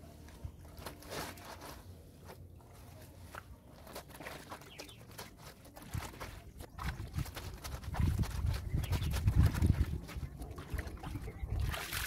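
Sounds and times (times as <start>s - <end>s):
water splashing: 9.1s - 12.0s.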